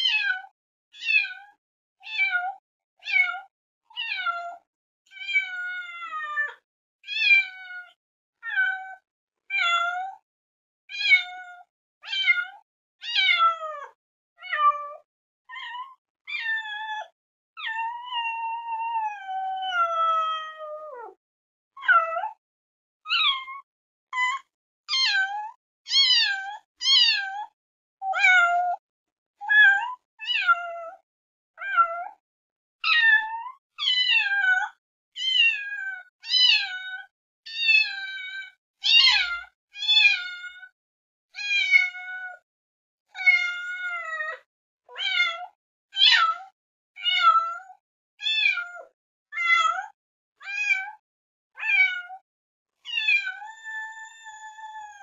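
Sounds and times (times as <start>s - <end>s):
cat meowing: 13.0s - 14.8s, 15.5s - 16.8s, 24.4s - 25.3s, 25.9s - 27.4s, 29.5s - 30.7s, 31.6s - 31.9s, 33.8s - 36.8s, 37.5s - 38.2s, 38.8s - 40.6s, 41.4s - 42.4s, 43.2s - 44.0s, 45.0s - 45.4s, 47.0s - 47.4s, 51.6s - 52.2s, 52.9s - 54.0s.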